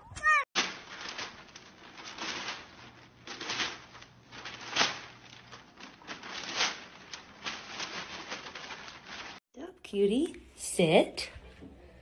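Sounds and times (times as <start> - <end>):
newspaper rustling and crinkling: 0.6 - 9.4.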